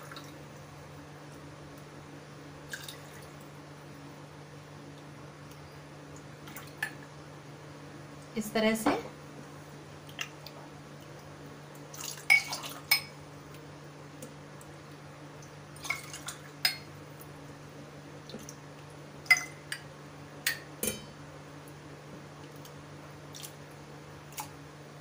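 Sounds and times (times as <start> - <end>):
low steady hum: 0.0 - 25.0
ladle clinking against pot and glass: 20.5 - 21.1.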